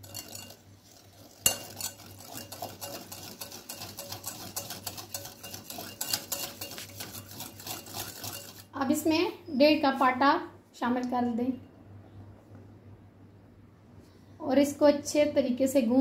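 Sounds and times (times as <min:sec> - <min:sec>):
whisk clicking against bowl: 0:00.0 - 0:00.6, 0:01.4 - 0:08.7.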